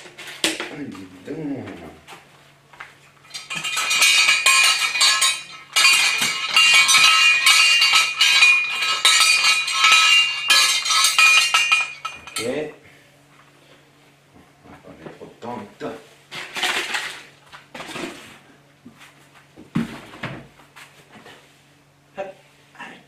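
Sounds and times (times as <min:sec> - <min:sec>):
metal fireplace tools clattering: 0:00.0 - 0:01.0, 0:03.2 - 0:12.7.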